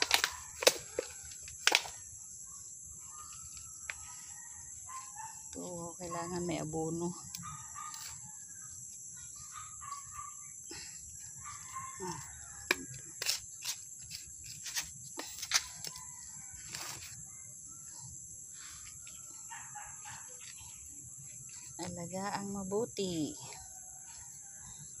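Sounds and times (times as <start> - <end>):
rooster crowing: 11.4 - 13.1.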